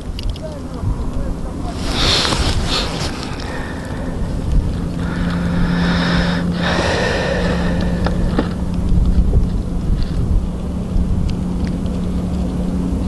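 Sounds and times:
faint clicks: 0:00.0 - 0:01.2
steady low hum: 0:00.0 - 0:13.0
wind buffeting microphone: 0:00.0 - 0:13.0.

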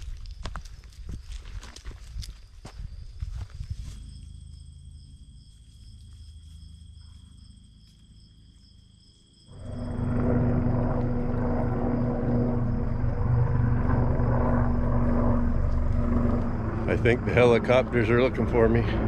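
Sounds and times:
helicopter engine and rotor drone: 0:09.5 - 0:19.0.

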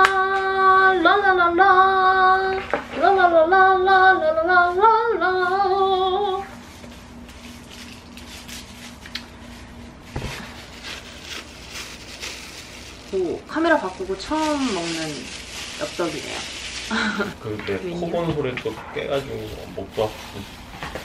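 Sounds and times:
rustling: 0:06.5 - 0:17.4.

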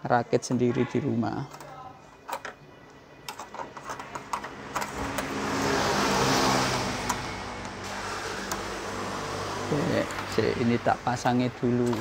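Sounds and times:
passing vehicle engine: 0:04.2 - 0:11.6.

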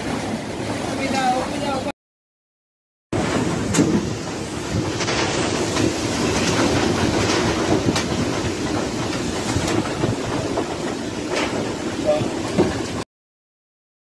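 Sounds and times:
loose metal roof sheets rattling: 0:03.2 - 0:13.0.

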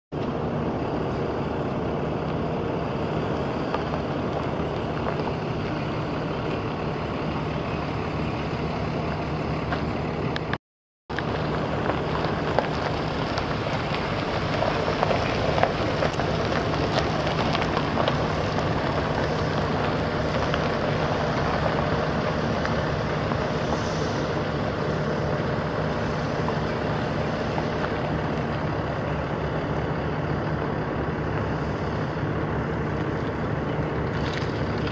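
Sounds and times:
truck engine running: 0:00.1 - 0:34.9.

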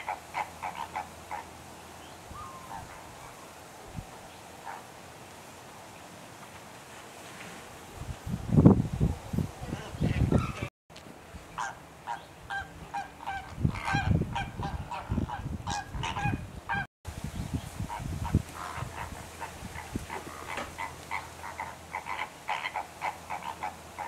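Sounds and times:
flamingos honking: 0:00.0 - 0:01.6, 0:11.5 - 0:16.9, 0:17.8 - 0:24.0.

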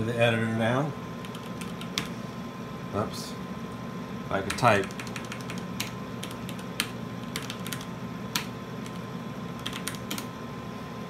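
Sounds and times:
machine hum: 0:00.0 - 0:11.0
keyboard keystrokes clicking: 0:04.5 - 0:09.0, 0:09.6 - 0:10.3.

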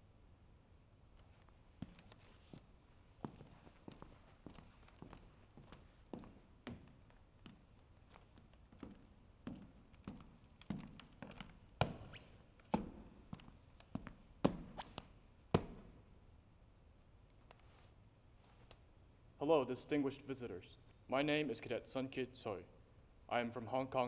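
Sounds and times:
footsteps on stage floor: 0:01.8 - 0:15.9.

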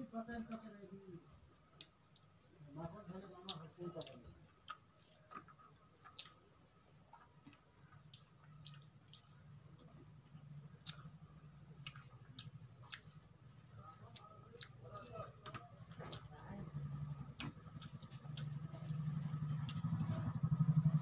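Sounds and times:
chewing: 0:03.4 - 0:06.5, 0:07.1 - 0:20.3
fingers squishing food: 0:03.4 - 0:06.5, 0:07.2 - 0:20.1.

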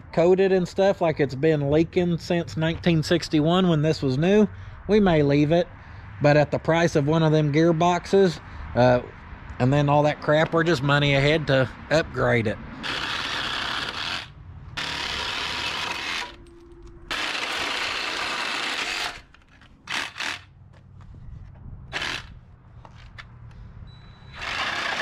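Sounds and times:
cordless power tool on steel: 0:12.8 - 0:20.5, 0:21.9 - 0:23.1, 0:24.3 - 0:25.0.

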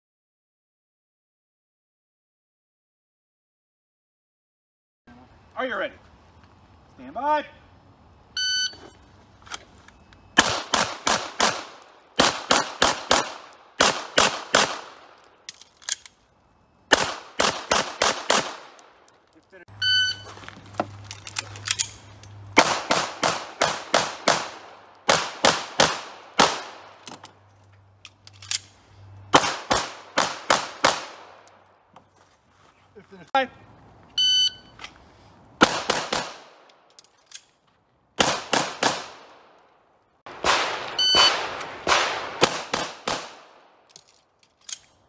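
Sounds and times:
shot timer beep: 0:08.4 - 0:08.8, 0:19.8 - 0:20.2, 0:34.2 - 0:34.7, 0:41.0 - 0:41.4
rapid pistol shots: 0:10.4 - 0:15.0, 0:16.9 - 0:18.8, 0:22.6 - 0:26.9, 0:29.3 - 0:31.4, 0:35.6 - 0:36.5, 0:38.2 - 0:39.2, 0:40.3 - 0:43.5.

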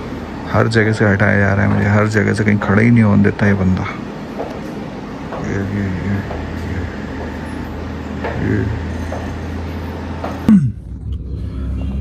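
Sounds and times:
motor humming: 0:00.0 - 0:12.0
faint voices: 0:05.2 - 0:12.0.

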